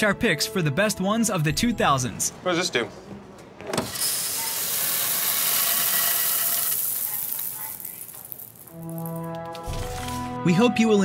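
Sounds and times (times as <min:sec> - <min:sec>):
coffee beans pouring: 0:04.0 - 0:10.3.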